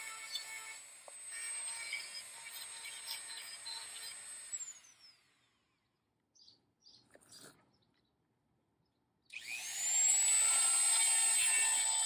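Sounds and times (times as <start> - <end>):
rotary tool whine: 0.0 - 5.9, 9.3 - 12.0
faint bird chirps: 1.7 - 9.4.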